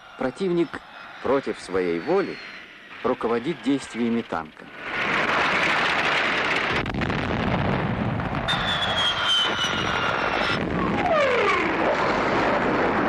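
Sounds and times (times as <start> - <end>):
high whistles sliding downward: 0.0 - 4.3, 8.5 - 12.0
steady rushing roar: 0.0 - 13.0.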